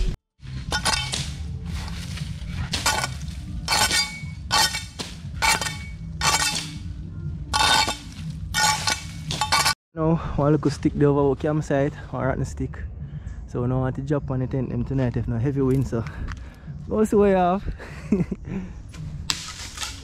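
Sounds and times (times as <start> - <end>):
steady low rumble: 0.0 - 9.4, 10.0 - 19.3
metal gear clanking: 2.5 - 6.8, 7.5 - 9.8.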